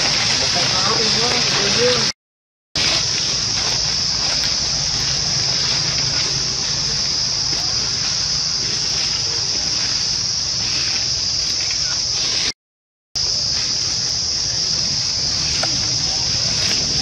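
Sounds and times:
high-pitched insect drone: 0:02.8 - 0:12.5, 0:13.2 - 0:17.0.

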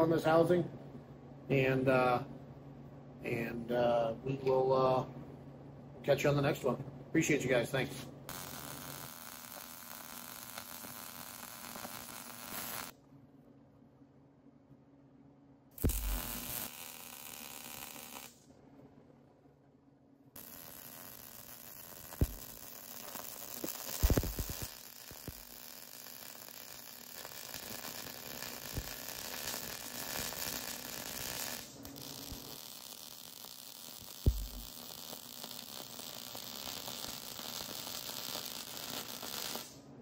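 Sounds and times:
welding arc crackling: 0:08.3 - 0:13.0, 0:15.8 - 0:18.4, 0:20.4 - 0:39.8.

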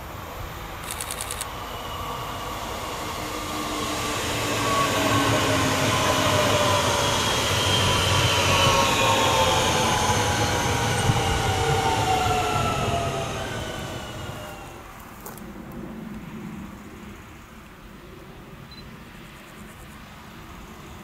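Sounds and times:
train wheels rumbling on rails: 0:00.0 - 0:16.6
electric traction whine: 0:00.0 - 0:17.4.

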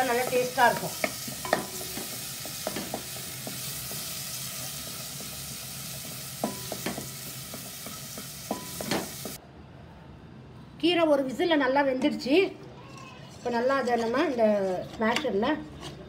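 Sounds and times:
spatula tapping pan: 0:00.0 - 0:04.1, 0:06.0 - 0:09.4
vegetables sizzling in hot oil: 0:00.0 - 0:09.4.

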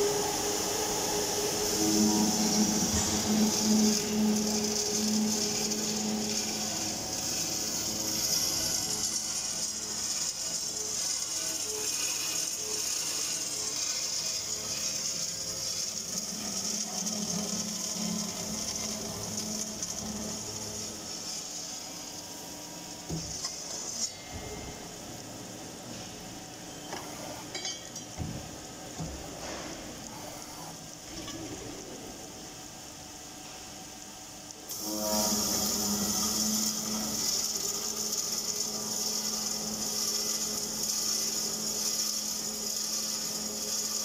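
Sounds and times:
cold saw blade whining: 0:00.0 - 0:25.6, 0:34.7 - 0:44.0
saw motor running: 0:00.0 - 0:25.6, 0:34.7 - 0:44.0.

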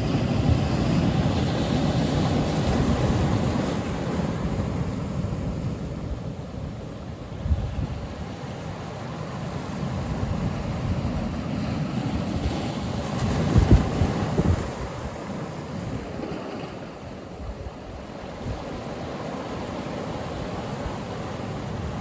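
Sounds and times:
surf on rocks: 0:00.0 - 0:22.0.

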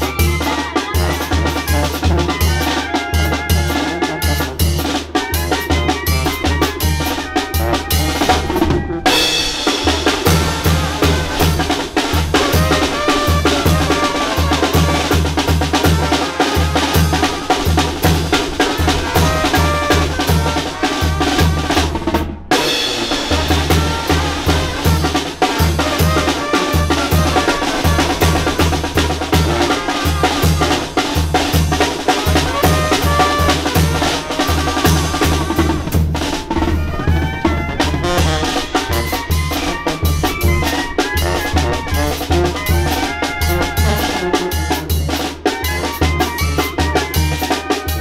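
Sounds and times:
bass drum snare and cymbals: 0:00.0 - 0:48.0
brass band with drums: 0:00.0 - 0:48.0
horns playing melody: 0:00.0 - 0:48.0
tuba bass line: 0:00.0 - 0:48.0.

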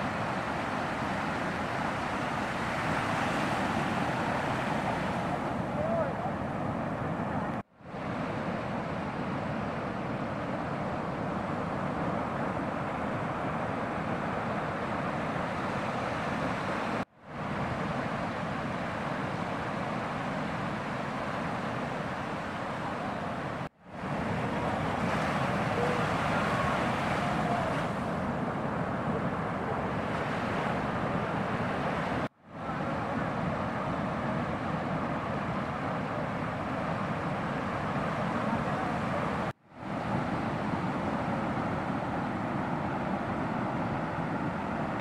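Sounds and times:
breaking surf: 0:15.2 - 0:45.0.

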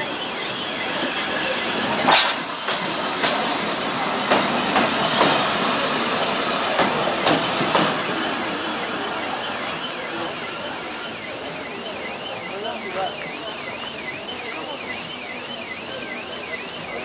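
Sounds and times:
train rumble: 0:00.0 - 0:17.0
train wheels clacking on rail joints: 0:01.8 - 0:08.6.

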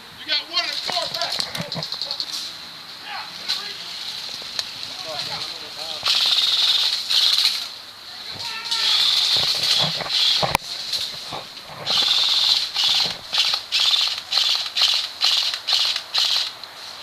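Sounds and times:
airsoft rifle firing bursts: 0:06.0 - 0:07.5, 0:11.9 - 0:16.6.

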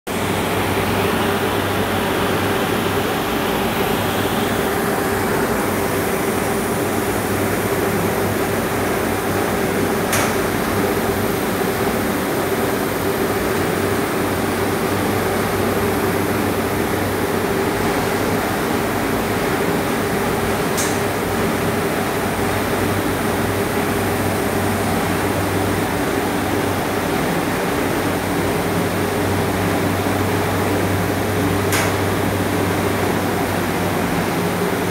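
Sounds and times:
machinery hum and hiss: 0:00.1 - 0:34.9.

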